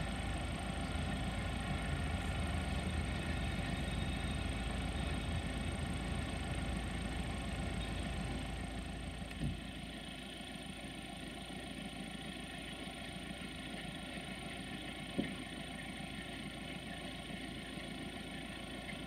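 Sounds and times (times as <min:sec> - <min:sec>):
diesel locomotive engine idling: 0:00.0 - 0:19.0
short thump: 0:09.3 - 0:09.7, 0:15.1 - 0:15.4.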